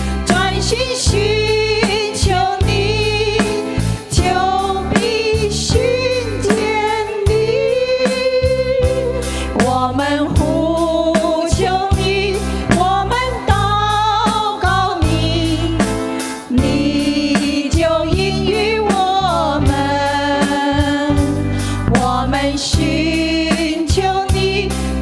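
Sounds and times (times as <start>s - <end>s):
drum kit steady beat: 0.0s - 25.0s
keyboard: 0.0s - 25.0s
women singing into microphones: 0.0s - 25.0s.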